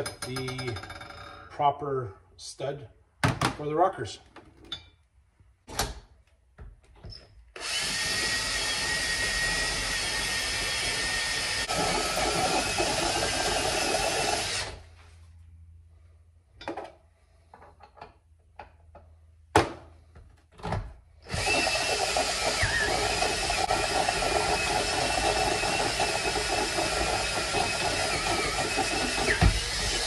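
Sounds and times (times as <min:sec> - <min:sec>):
power drill drilling metal: 0:07.6 - 0:14.8, 0:21.2 - 0:30.0.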